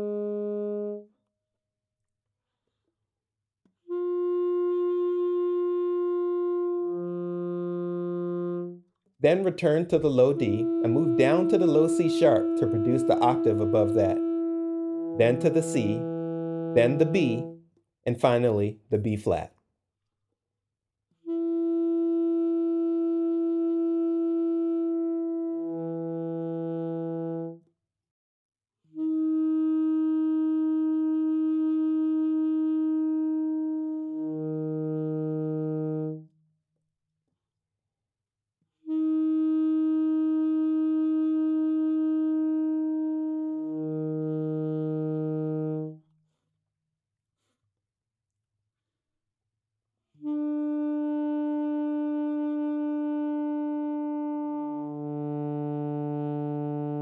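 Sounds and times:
saxophone long tones: 0:00.0 - 0:01.1, 0:03.8 - 0:17.6, 0:21.2 - 0:27.6, 0:28.9 - 0:36.3, 0:38.9 - 0:46.1, 0:50.2 - 0:57.0.

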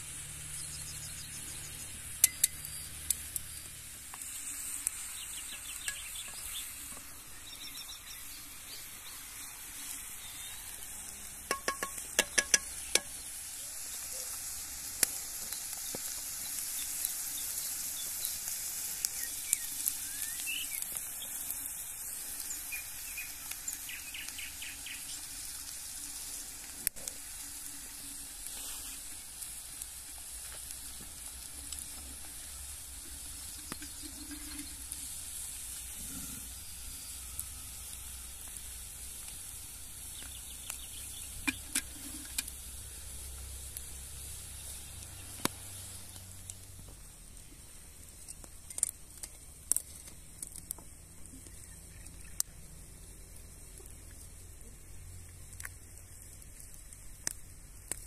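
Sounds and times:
food sizzling in a pan: 0:00.0 - 0:58.0
sharp pops and crackles: 0:00.0 - 0:58.0.

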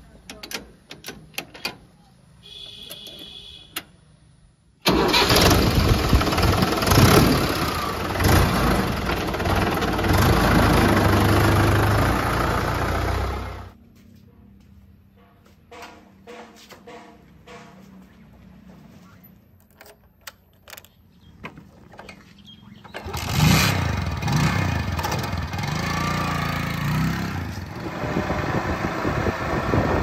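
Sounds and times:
tractor diesel engine running: 0:04.8 - 0:13.8, 0:22.4 - 0:30.0
starter clicks: 0:19.5 - 0:22.2.

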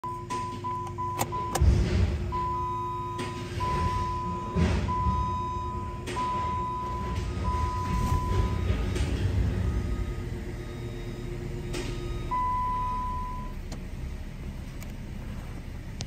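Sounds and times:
dashboard warning chime beeping: 0:00.0 - 0:01.7, 0:02.3 - 0:13.8
ignition key clicks: 0:00.1 - 0:01.7.

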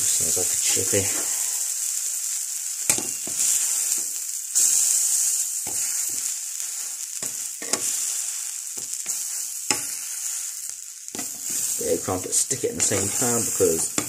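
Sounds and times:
crumpet sizzling in frying pan: 0:00.0 - 0:14.0
spatula tapping and scraping pan: 0:02.9 - 0:04.1, 0:05.7 - 0:06.3, 0:07.2 - 0:08.0, 0:08.8 - 0:10.1, 0:11.2 - 0:14.0.

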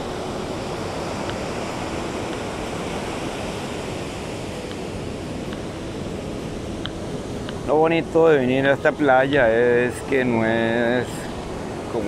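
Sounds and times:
ocean waves breaking: 0:00.0 - 0:12.0.

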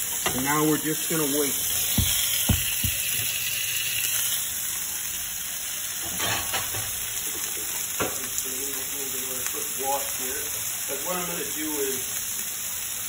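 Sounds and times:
steaks sizzling in frying pan: 0:00.0 - 0:13.0.

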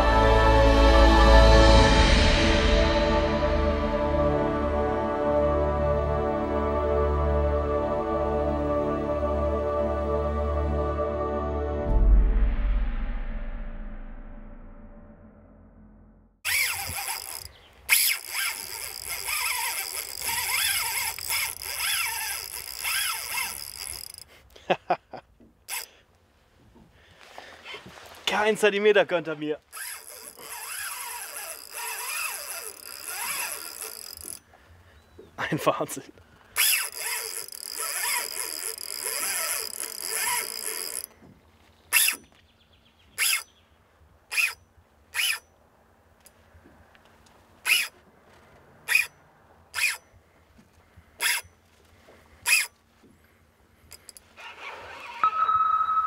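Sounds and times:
sharp reel clicks: 0:16.4 - 0:24.3, 0:25.7 - 0:25.9, 0:29.7 - 0:34.5, 0:36.6 - 0:41.1, 0:41.9 - 0:42.2, 0:43.2 - 0:43.5, 0:44.3 - 0:44.6, 0:45.2 - 0:45.4, 0:47.6 - 0:48.0, 0:48.9 - 0:50.0, 0:51.2 - 0:51.5, 0:52.4 - 0:52.7
fishing reel drag buzzing: 0:16.4 - 0:24.4, 0:25.7 - 0:25.9, 0:29.7 - 0:34.5, 0:36.6 - 0:41.2, 0:41.9 - 0:42.3, 0:43.2 - 0:43.5, 0:44.3 - 0:45.5, 0:47.6 - 0:48.0, 0:48.9 - 0:50.1, 0:51.2 - 0:51.5, 0:52.4 - 0:52.8, 0:53.9 - 0:55.4.

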